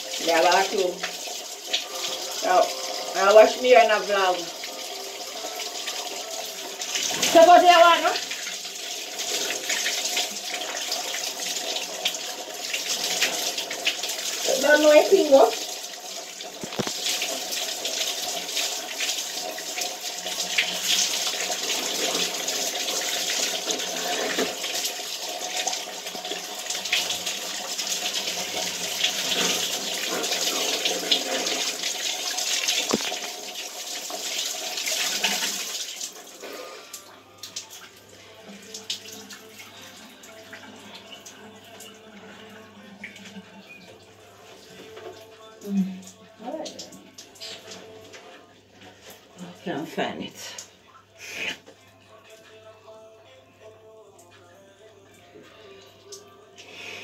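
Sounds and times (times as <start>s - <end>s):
shower spray running: 0.0s - 43.8s.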